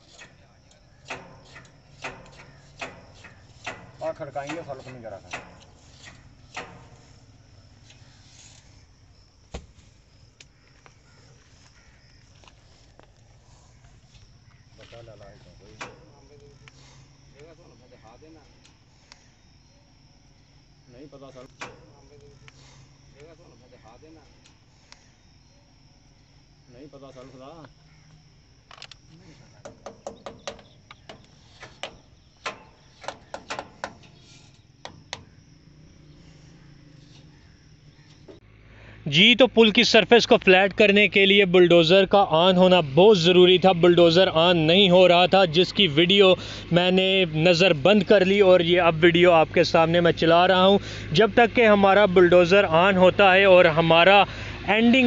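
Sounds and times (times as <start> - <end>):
metal lever knocking: 0.2 - 7.1, 29.6 - 34.2, 34.8 - 35.4.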